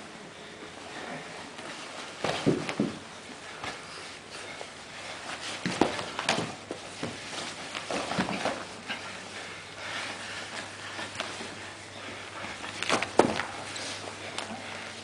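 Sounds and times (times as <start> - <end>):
bodies thumping on rubber mat: 2.1 - 3.0, 5.3 - 8.8, 12.5 - 14.0.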